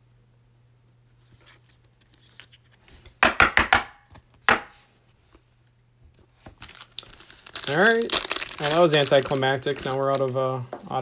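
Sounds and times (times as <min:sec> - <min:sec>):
cards shuffling: 0:01.2 - 0:02.9.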